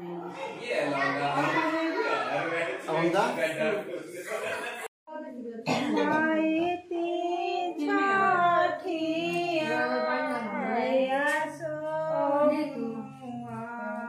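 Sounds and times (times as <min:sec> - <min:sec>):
women singing together: 0:05.1 - 0:14.0.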